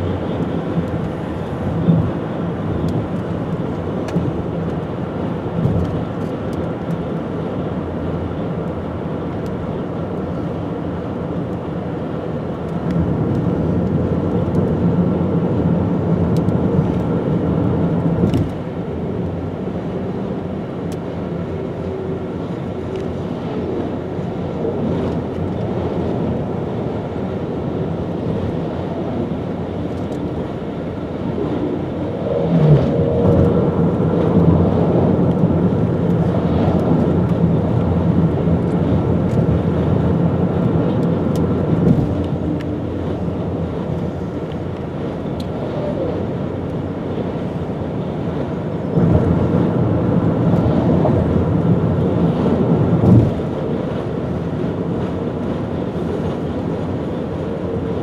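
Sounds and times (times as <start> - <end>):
road and wind noise in car: 0.0 - 58.0
low hum: 28.2 - 44.6.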